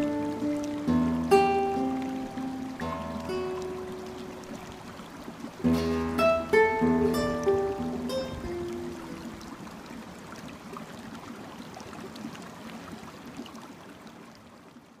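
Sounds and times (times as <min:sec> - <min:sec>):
stream water rushing: 0:00.0 - 0:15.0
guitar note ringing: 0:05.6 - 0:09.2.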